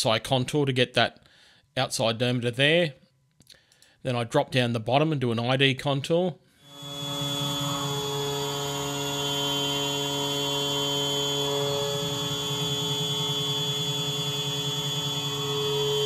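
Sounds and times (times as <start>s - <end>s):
low pulsing hum: 6.6s - 16.0s
milling machine cutting whine: 6.6s - 16.0s.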